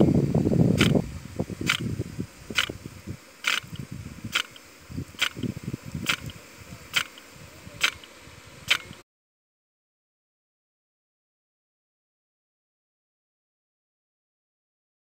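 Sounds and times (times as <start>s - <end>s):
low rumble of spray: 0.0s - 9.0s
sprinkler arm clicking: 0.7s - 1.0s, 1.6s - 9.0s.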